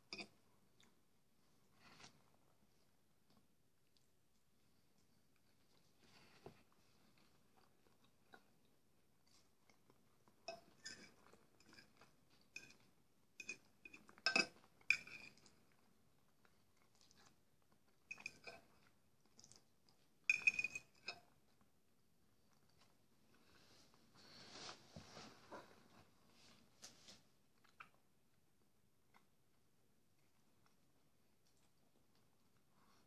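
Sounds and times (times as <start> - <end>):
chewing: 1.8 - 20.5, 27.6 - 28.1.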